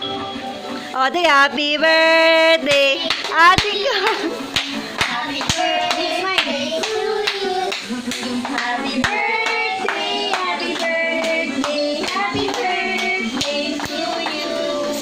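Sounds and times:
hands clapping: 2.7s - 15.0s
children singing together: 5.0s - 15.0s.

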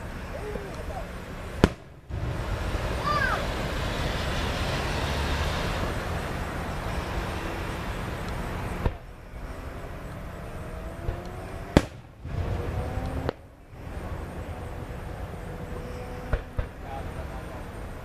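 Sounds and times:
firework whistle: 0.0s - 9.9s
fireworks rumble and hiss: 0.0s - 18.0s
sharp firework crack: 0.7s - 6.3s, 7.8s - 9.1s, 11.0s - 14.3s, 16.3s - 17.0s
faint rising whistles: 2.2s - 18.0s.

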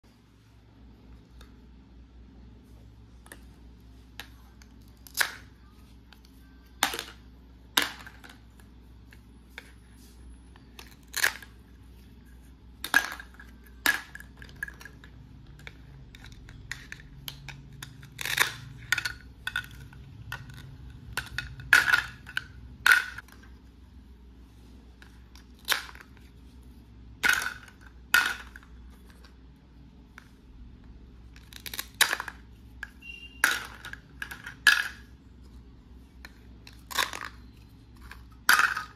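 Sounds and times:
plastic toys clicking and clacking: 4.2s - 9.8s, 10.6s - 23.6s, 25.0s - 26.4s, 27.1s - 29.4s, 31.2s - 35.2s, 36.2s - 38.9s.

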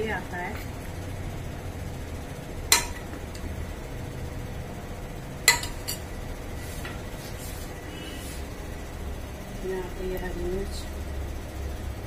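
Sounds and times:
metal ladle clinking on steel: 5.5s - 6.0s.

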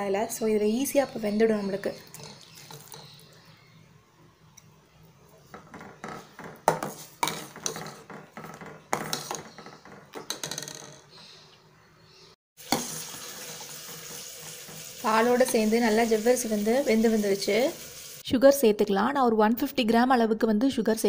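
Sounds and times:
hot pot hissing: 12.6s - 18.2s.

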